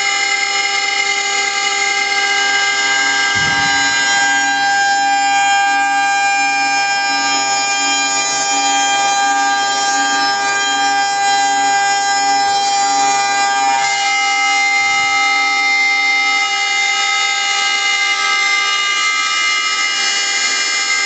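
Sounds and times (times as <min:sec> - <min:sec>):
router spindle whining: 0:00.0 - 0:21.0
low pulsing hum: 0:03.0 - 0:04.9.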